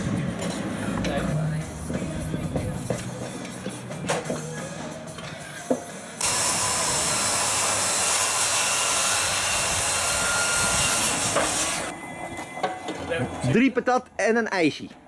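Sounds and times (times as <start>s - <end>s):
loud rushing machine noise: 6.2s - 12.4s.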